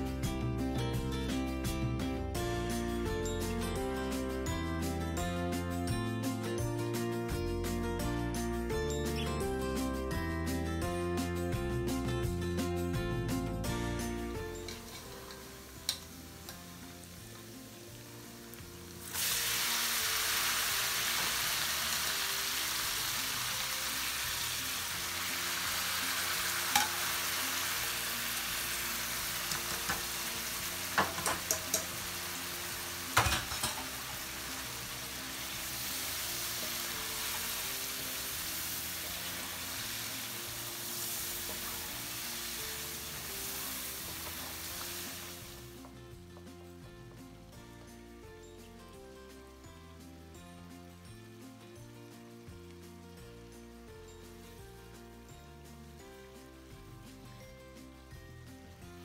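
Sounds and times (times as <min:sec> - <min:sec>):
meat sizzling in hot oil: 0:14.0 - 0:46.0.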